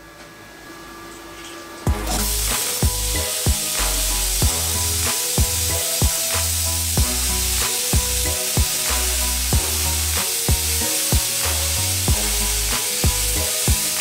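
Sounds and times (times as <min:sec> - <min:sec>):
music with kick drum and bass: 0:01.9 - 0:14.0
plasma cutter hissing sizzle: 0:01.9 - 0:14.0.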